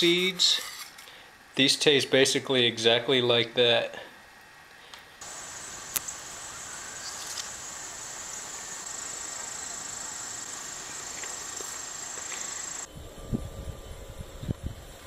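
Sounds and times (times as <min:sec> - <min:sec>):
high-pitched insect chorus: 0:05.2 - 0:12.9.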